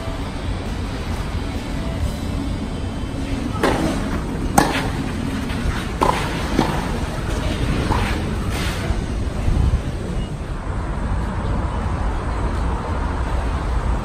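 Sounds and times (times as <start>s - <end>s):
tennis balls struck by rackets: 3.3s - 8.3s.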